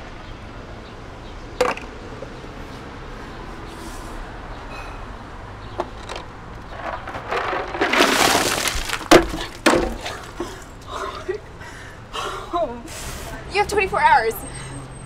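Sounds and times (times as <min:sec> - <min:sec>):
ice cubes clattering on concrete: 0:06.1 - 0:10.7.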